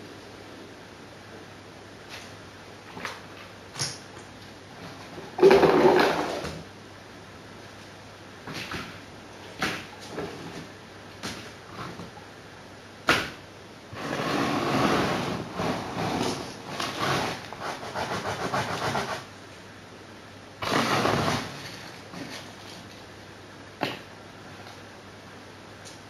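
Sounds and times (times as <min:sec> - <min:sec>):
rustling and scraping: 0:02.0 - 0:06.7, 0:07.7 - 0:12.2, 0:13.9 - 0:19.3, 0:20.6 - 0:23.1.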